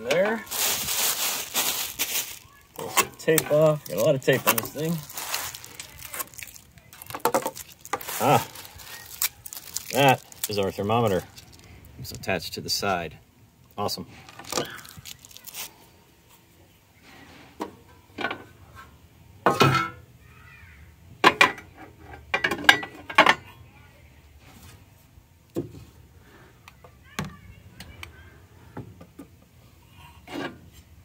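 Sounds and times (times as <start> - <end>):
plastic and metal parts clunking: 0.0 - 11.7, 14.2 - 15.4
packing material rustling: 0.3 - 11.8, 14.2 - 15.8.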